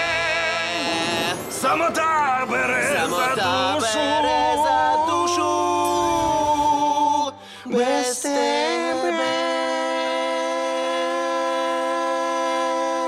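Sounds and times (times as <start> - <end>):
slow sad singing: 2.4 - 13.0.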